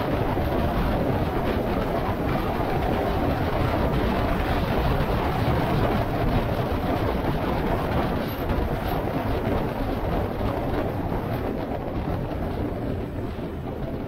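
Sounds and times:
vehicle engine and road noise: 0.0 - 14.0
wind buffeting microphone: 0.0 - 14.0.

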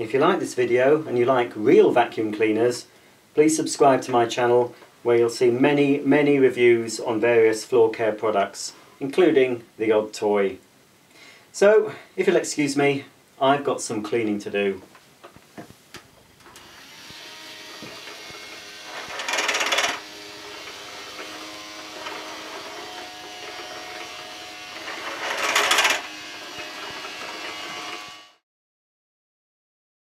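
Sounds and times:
toy vacuum motor whining: 16.5 - 28.4.

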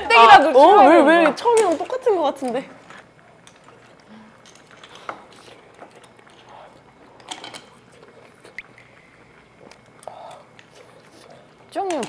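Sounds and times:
soft chewing: 2.9 - 11.7.

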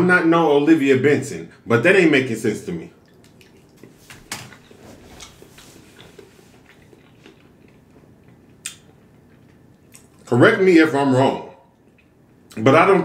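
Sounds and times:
man chewing with wet mouth clicks: 3.0 - 10.3, 11.7 - 12.6.

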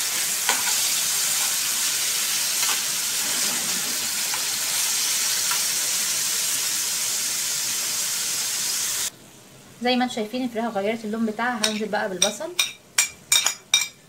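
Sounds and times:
chicken sizzling in frying pan: 0.0 - 9.1.

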